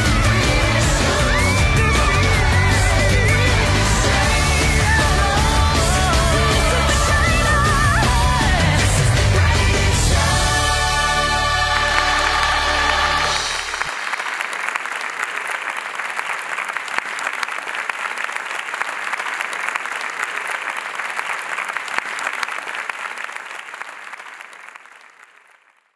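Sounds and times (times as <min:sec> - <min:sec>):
music: 0:00.0 - 0:13.9
audience applauding: 0:00.0 - 0:25.9.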